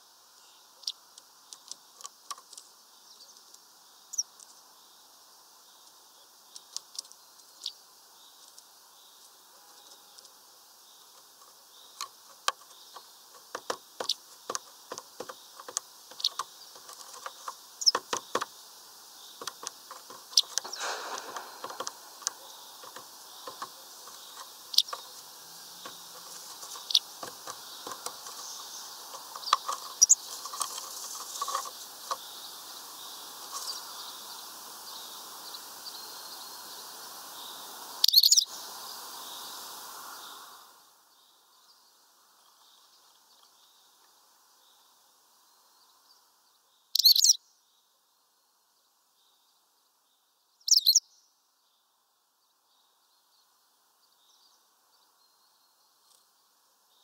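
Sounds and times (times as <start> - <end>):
bird pecking on wood: 11.2 - 18.6, 19.4 - 32.2
high bird chirps: 19.3 - 30.6, 38.0 - 38.5, 46.9 - 47.4, 50.6 - 51.0
bird wings flapping: 19.4 - 25.2, 25.8 - 32.2.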